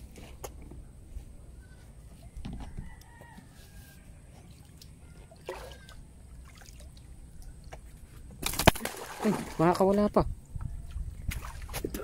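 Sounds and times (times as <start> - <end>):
rooster crowing: 2.4 - 4.2.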